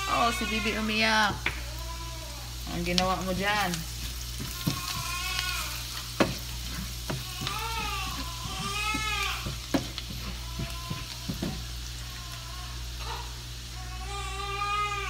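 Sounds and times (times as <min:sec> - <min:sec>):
baby crying: 0:00.0 - 0:02.6, 0:04.5 - 0:05.9, 0:07.1 - 0:09.6, 0:10.2 - 0:15.0
onions sizzling in a frying pan: 0:00.0 - 0:15.0
spoon knocking against pan: 0:04.3 - 0:05.5, 0:06.2 - 0:11.7.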